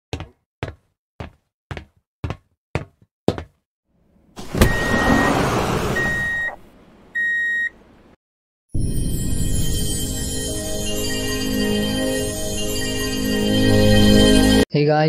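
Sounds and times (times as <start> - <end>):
heavy clunk: 4.4 - 6.6
sliding doors hissing open: 4.4 - 7.1
electronic beeps: 6.0 - 6.6
music: 8.8 - 14.6.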